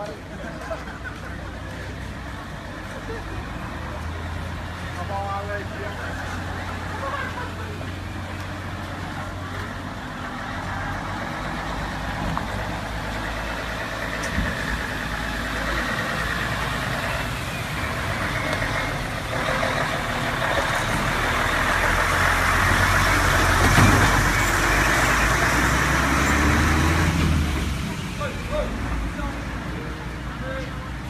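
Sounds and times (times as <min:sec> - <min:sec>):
truck engine passing: 0:00.0 - 0:31.0
tyres hissing on wet road: 0:01.4 - 0:30.5.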